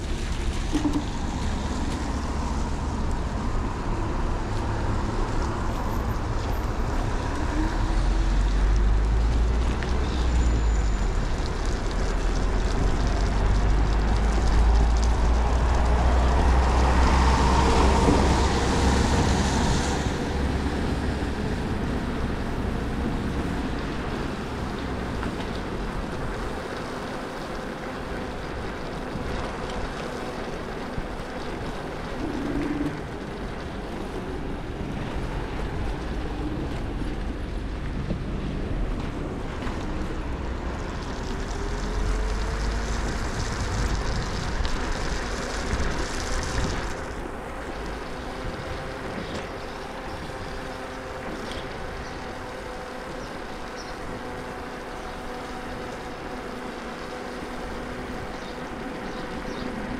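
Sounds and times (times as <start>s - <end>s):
tyres hissing on wet pavement: 0.0s - 59.9s
wind buffeting microphone: 28.2s - 59.9s.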